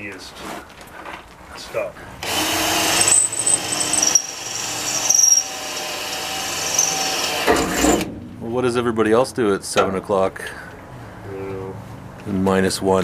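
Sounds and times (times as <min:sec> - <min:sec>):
electric drill drilling metal: 0:02.2 - 0:08.0
drill bit squealing: 0:02.3 - 0:07.5.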